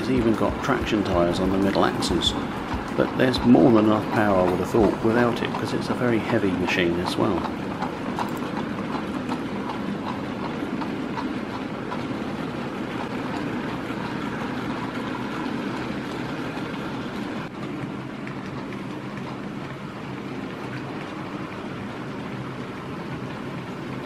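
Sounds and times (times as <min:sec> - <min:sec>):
model train wheels rumbling: 0:00.0 - 0:17.5.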